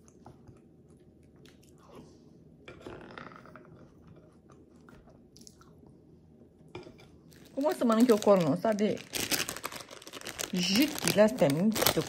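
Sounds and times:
person chewing food: 0.0 - 2.2.

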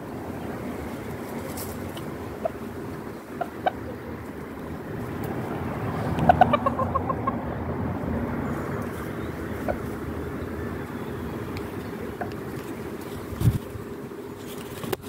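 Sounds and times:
chicken clucking: 3.3 - 4.3, 6.1 - 7.5.

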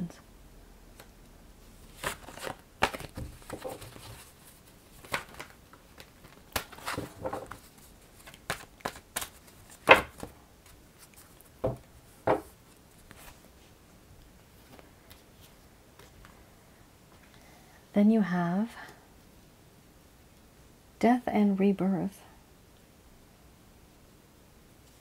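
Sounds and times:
cards shuffling and snapping: 1.9 - 11.5.

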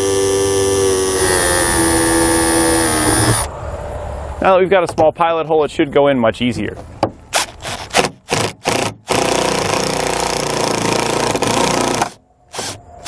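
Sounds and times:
cordless drill driving screw: 0.0 - 3.5.

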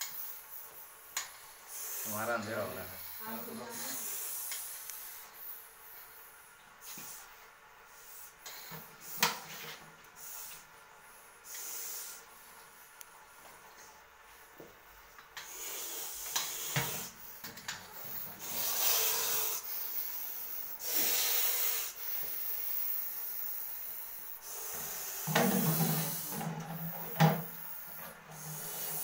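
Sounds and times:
snake hissing: 0.0 - 6.2, 11.4 - 12.3, 15.4 - 29.0.

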